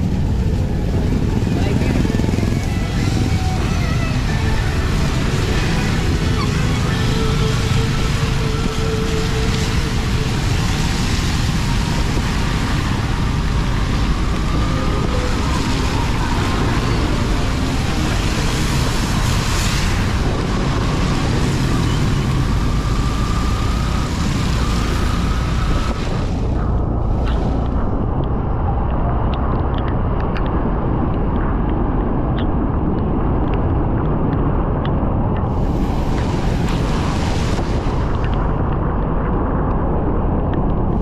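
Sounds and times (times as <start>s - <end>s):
motorcycle engine: 0.0s - 20.2s
road and wind noise: 0.0s - 41.0s
vehicles passing: 0.0s - 41.0s.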